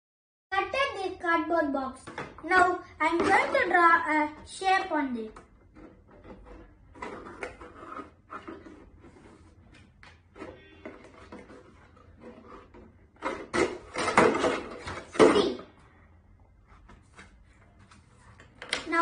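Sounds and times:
cardboard scraping and rustling: 5.7 - 9.7, 10.3 - 15.2
pencil scratching on cardboard: 7.2 - 9.4.

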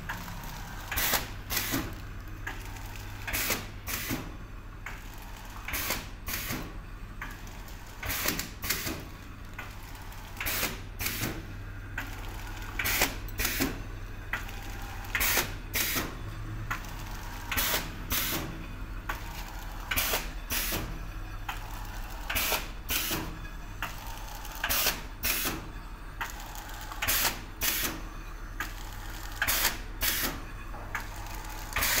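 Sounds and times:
machine low hum: 0.0 - 32.0
packing machine clacking: 28.6 - 32.0.

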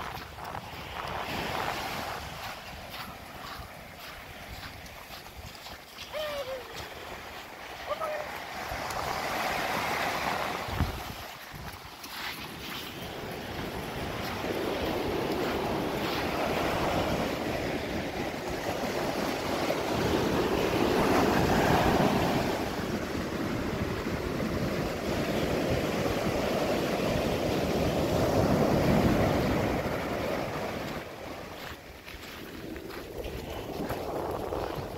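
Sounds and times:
surf washing up a beach: 0.0 - 34.9
wind buffeting microphone: 0.0 - 34.9.

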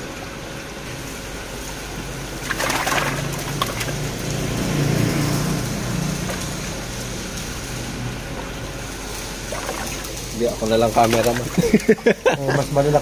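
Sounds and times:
running water: 2.3 - 7.6, 8.8 - 13.0
water splashing in nets: 2.4 - 5.4, 9.4 - 12.1.

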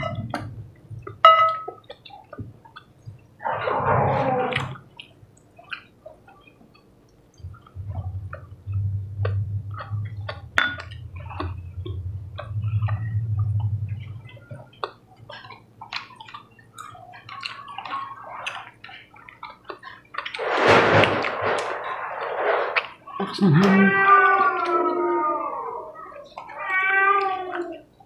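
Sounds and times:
low steady hum: 0.0 - 26.2
wet chewing and lip-smacking: 4.9 - 7.8, 13.6 - 20.4.

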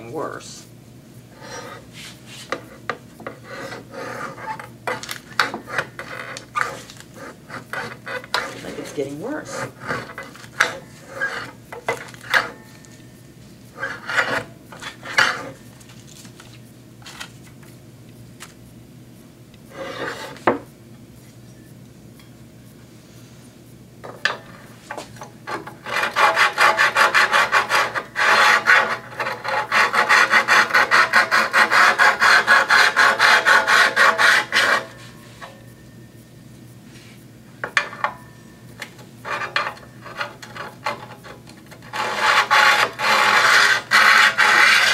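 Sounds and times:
hone scraping blade edge: 1.3 - 16.1, 19.7 - 20.6, 24.0 - 35.9, 36.9 - 44.9.

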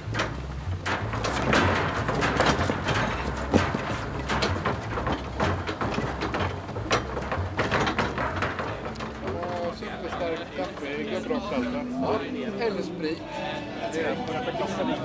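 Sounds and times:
wheeled cabinet rattling on dirt: 0.0 - 12.3.

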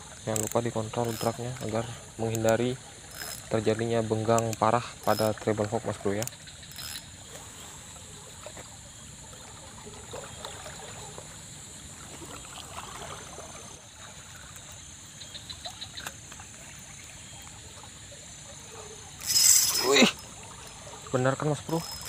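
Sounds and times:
floodwater rushing: 11.9 - 14.7, 16.3 - 22.0.

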